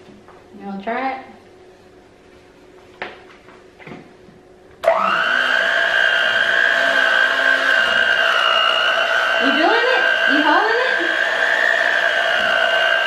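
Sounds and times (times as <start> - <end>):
electric hand mixer whining: 4.8 - 13.0.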